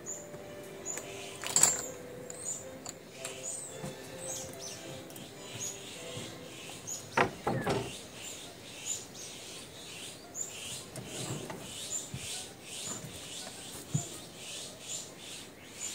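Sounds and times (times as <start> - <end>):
bird chirping: 0.0 - 15.9
knocks and rustles: 5.6 - 8.0, 10.9 - 14.2.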